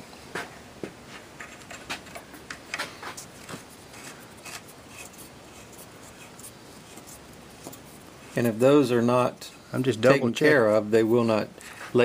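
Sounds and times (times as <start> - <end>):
metallic clicks and rubbing: 1.4 - 8.6.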